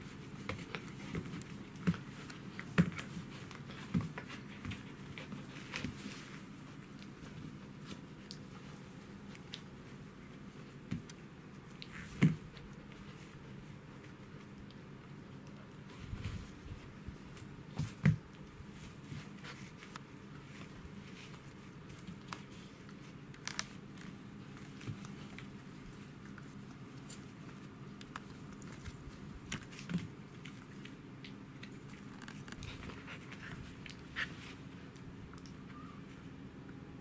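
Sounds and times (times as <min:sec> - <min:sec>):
faint steady hum: 0:00.0 - 0:37.0
puppy chewing fabric toy: 0:17.7 - 0:35.5.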